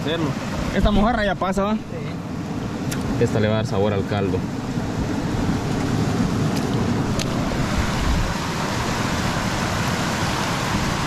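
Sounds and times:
river water rushing: 0.0 - 11.0
wind buffeting microphone: 4.5 - 11.0.

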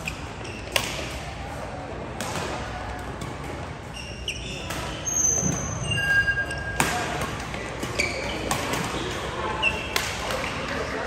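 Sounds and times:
shoes squeaking on court: 0.0 - 1.1, 3.2 - 11.0
racket hitting shuttlecock: 0.6 - 1.3, 6.8 - 9.1.

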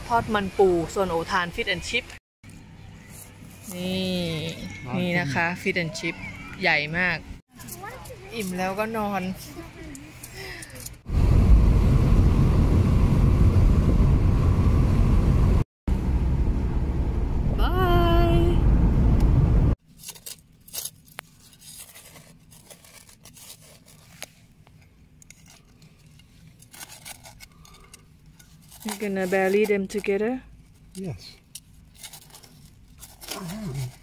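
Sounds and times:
wind and road noise: 9.3 - 19.8
trowel digging in soil: 31.8 - 34.0.

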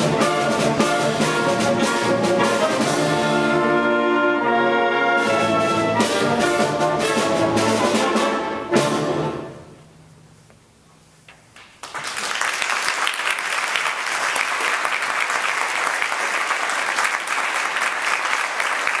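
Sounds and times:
audience applause: 11.8 - 19.0.

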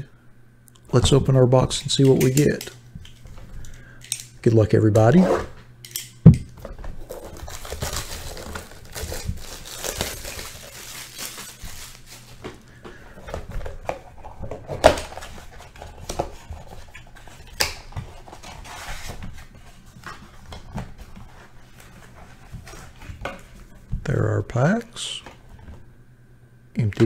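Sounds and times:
cellophane crinkling and tearing: 7.0 - 12.7.

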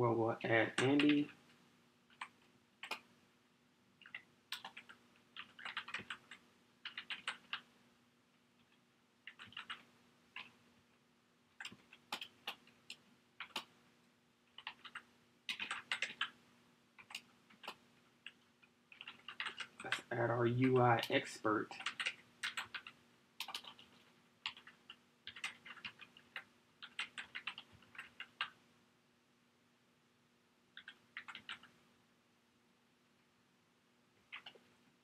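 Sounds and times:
computer keyboard typing: 0.5 - 1.4, 2.1 - 3.1, 4.0 - 7.7, 8.6 - 10.6, 11.6 - 13.8, 14.5 - 16.4, 17.0 - 28.6, 30.7 - 31.8, 34.2 - 34.7.

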